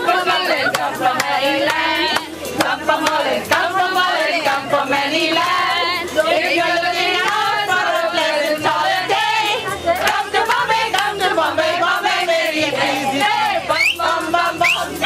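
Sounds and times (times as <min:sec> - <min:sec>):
women singing together: 0:00.0 - 0:15.0
hands clapping: 0:00.7 - 0:03.6, 0:07.2 - 0:07.4, 0:10.0 - 0:11.2.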